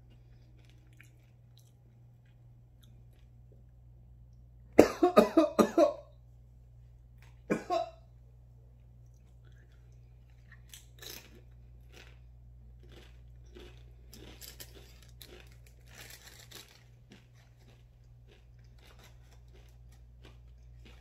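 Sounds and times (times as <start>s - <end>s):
chip crunching while chewed: 0.0s - 3.5s, 9.0s - 21.0s
low hum: 0.0s - 21.0s
foil packet crinkling: 13.8s - 21.0s.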